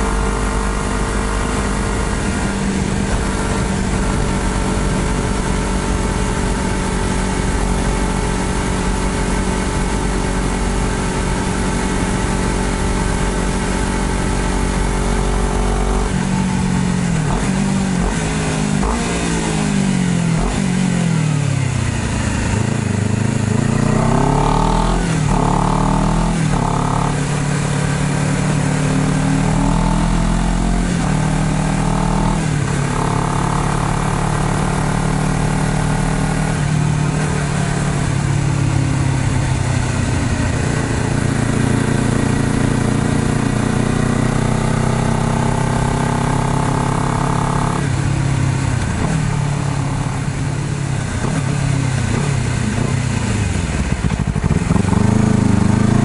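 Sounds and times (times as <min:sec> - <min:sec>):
motorcycle engine revving: 0:00.0 - 0:56.0
wind rushing over microphone: 0:01.6 - 0:09.2.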